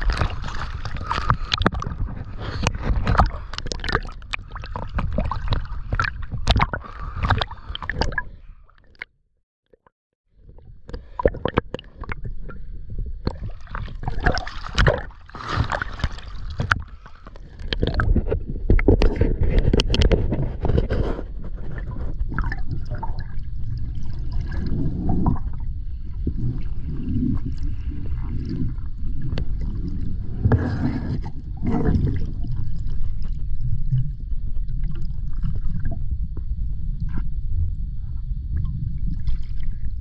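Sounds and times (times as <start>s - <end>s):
water sloshing and gurgling: 0.0s - 9.1s, 9.7s - 40.0s.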